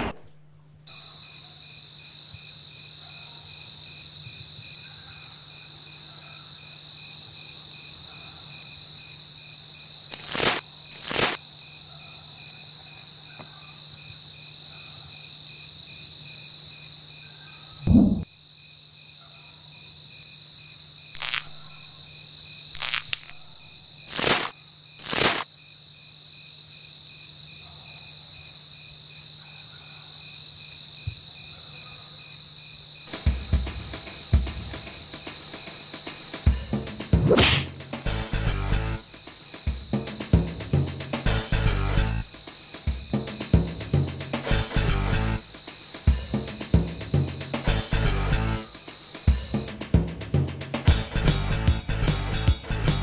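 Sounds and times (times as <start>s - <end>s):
crickets chirring: 0.9s - 49.7s
low thump: 17.9s - 18.2s.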